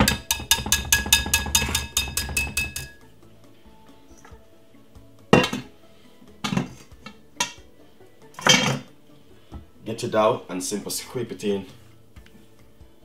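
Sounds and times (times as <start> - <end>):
whisk clinking against glass bowl: 0.0 - 3.0.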